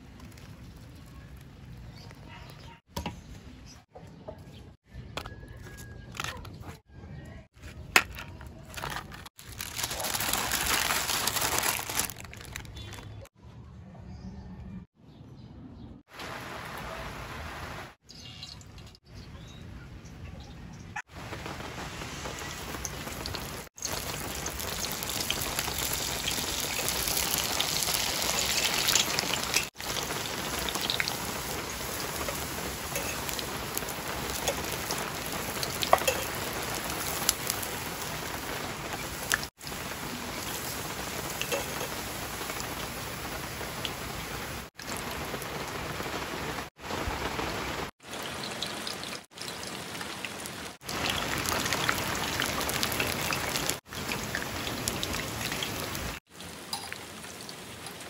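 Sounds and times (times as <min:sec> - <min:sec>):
wafer sizzling in hot oil: 0:21.4 - 0:45.2.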